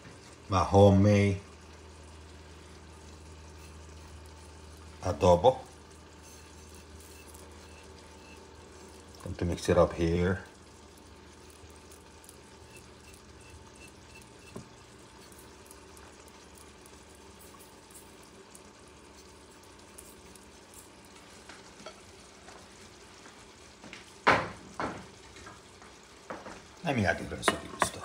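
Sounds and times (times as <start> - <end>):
spoon scraping a plate: 6.2 - 8.4.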